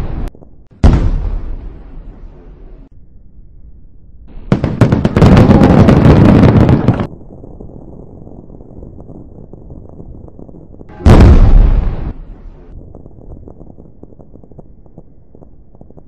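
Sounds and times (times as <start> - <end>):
low crackling rumble: 0.0 - 16.0
dense firework crackle: 4.5 - 16.0.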